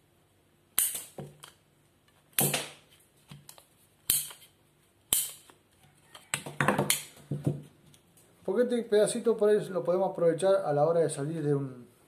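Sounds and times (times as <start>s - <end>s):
pipe cutter snapping plastic pipe: 5.1s - 5.5s.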